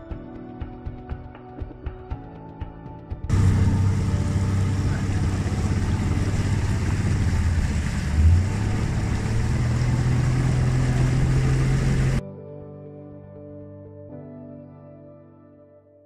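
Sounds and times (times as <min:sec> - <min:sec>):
outboard motor droning: 0:03.3 - 0:12.2
wind and water rushing: 0:03.3 - 0:12.2.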